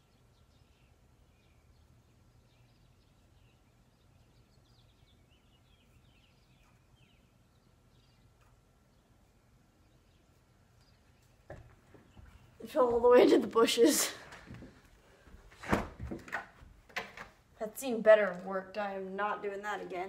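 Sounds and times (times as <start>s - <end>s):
faint bird chirps: 0.0s - 12.6s.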